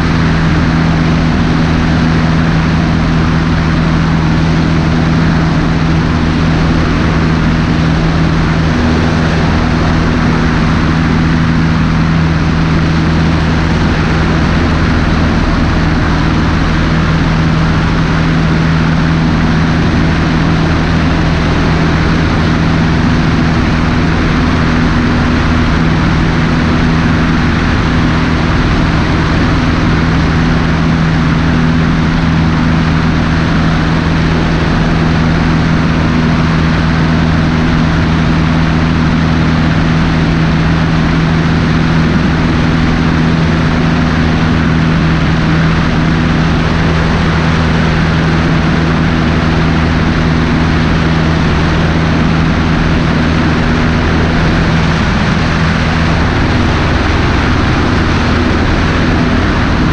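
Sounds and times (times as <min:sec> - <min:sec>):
airflow rushing: 0:00.0 - 0:59.9
airplane engine drone: 0:00.0 - 0:59.9.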